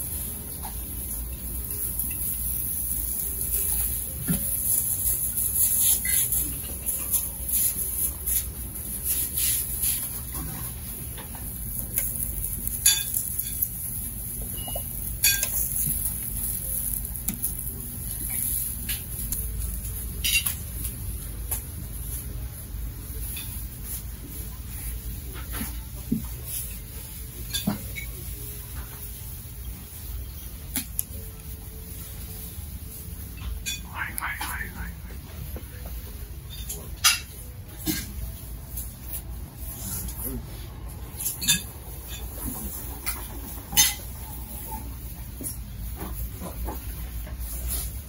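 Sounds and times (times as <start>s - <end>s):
steady hiss: 0.0s - 25.8s
plates and cutlery clinking: 1.6s - 19.4s, 25.3s - 29.3s, 35.7s - 48.0s.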